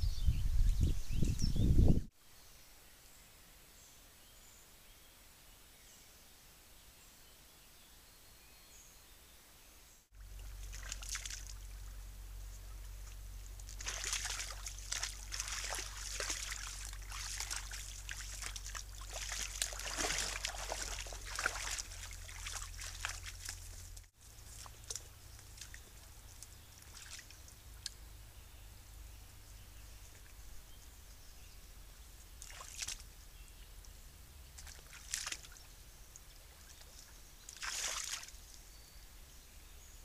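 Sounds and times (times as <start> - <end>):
deer splashing in water: 10.2 - 12.0, 13.0 - 27.4, 32.4 - 33.2, 34.6 - 38.5.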